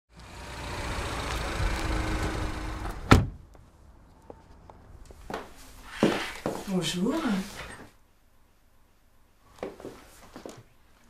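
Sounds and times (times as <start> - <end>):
car engine rumbling: 0.1 - 5.0
car door slamming: 2.2 - 3.4.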